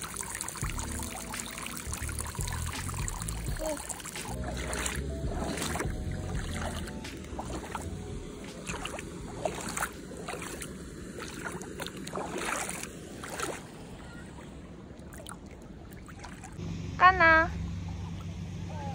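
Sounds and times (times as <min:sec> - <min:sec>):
feet splashing in shallow water: 0:00.0 - 0:16.6
small waves washing: 0:00.0 - 0:16.6.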